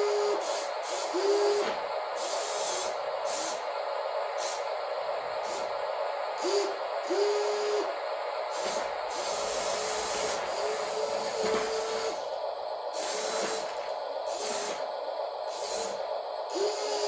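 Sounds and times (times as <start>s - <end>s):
toy electric motors whining: 8.5s - 17.0s.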